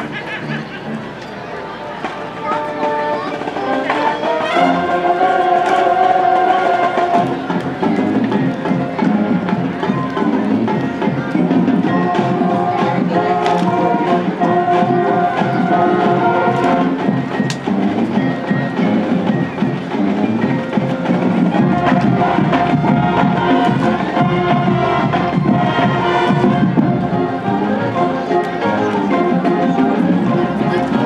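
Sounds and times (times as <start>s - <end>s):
marching band playing: 1.6s - 31.0s
drumline beats: 2.0s - 31.0s.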